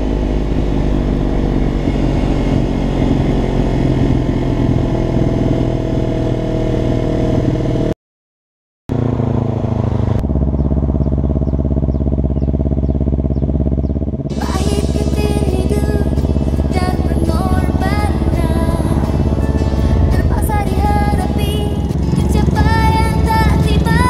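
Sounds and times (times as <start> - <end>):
motorcycle engine: 0.0 - 8.0, 8.9 - 24.0
music: 14.3 - 24.0.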